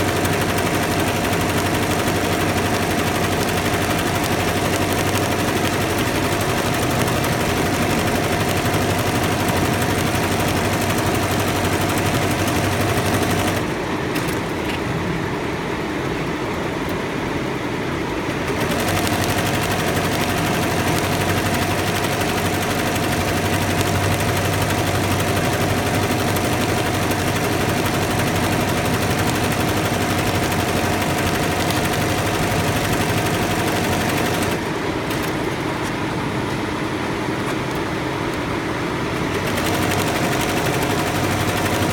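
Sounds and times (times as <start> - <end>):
embroidery machine stitching: 0.0 - 14.4, 18.4 - 35.4, 39.2 - 41.9.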